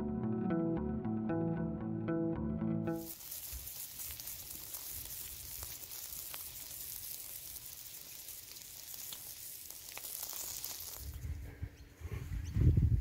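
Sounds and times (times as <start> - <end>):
bacon sizzling in hot iron: 3.0 - 11.2
sharp pops: 3.0 - 11.2.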